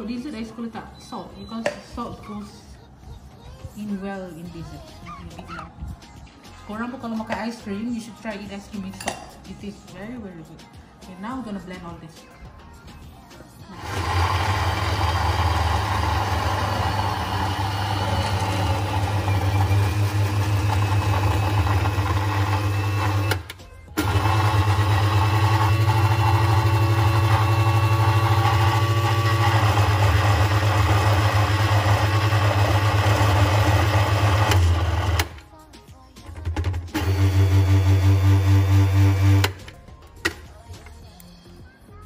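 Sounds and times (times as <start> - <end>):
blender motor running: 13.7 - 35.3, 36.9 - 39.6.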